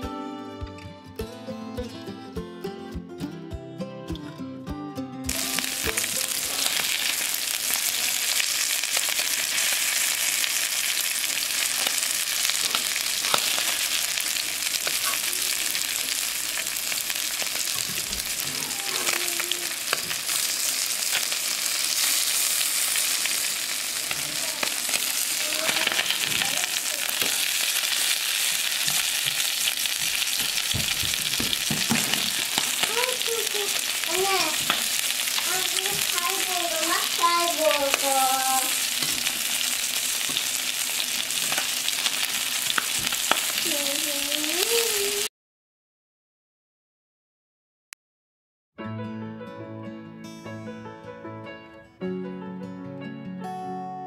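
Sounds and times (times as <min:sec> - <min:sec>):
fish sizzling in hot oil: 0:05.3 - 0:45.3.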